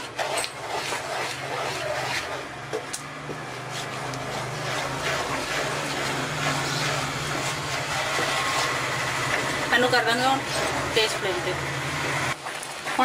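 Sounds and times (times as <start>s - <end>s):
spatula scraping thick paste in pan: 0.0s - 2.5s, 3.4s - 9.0s.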